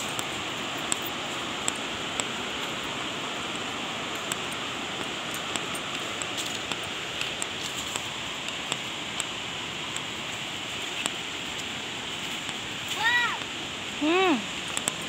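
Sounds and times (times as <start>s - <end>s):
waterfall rushing: 0.0s - 15.0s
footsteps on rocky path: 3.5s - 13.2s.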